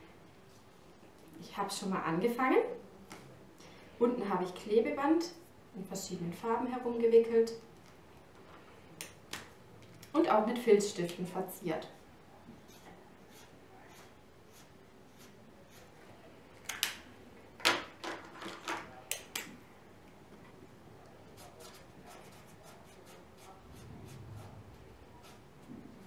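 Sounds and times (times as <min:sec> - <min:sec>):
felt-tip pen scratching on wood: 0:25.2 - 0:25.4.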